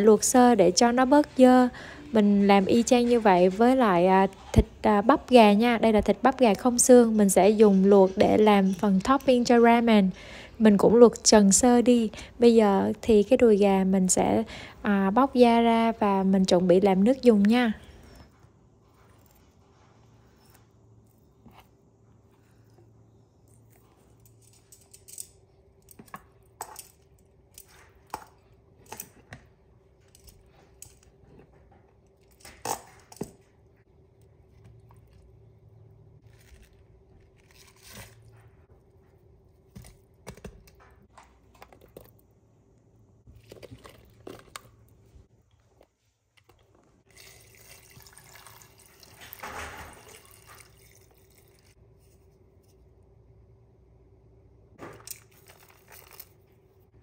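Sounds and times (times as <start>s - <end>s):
water pouring into pot: 47.1s - 49.4s, 50.0s - 51.7s.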